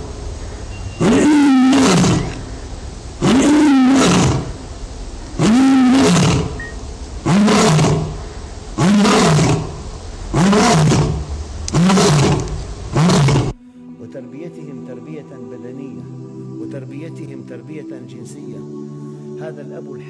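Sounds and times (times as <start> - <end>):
lion roaring: 1.0 - 2.5, 3.2 - 4.6, 5.4 - 6.6, 7.2 - 8.2, 8.8 - 13.6.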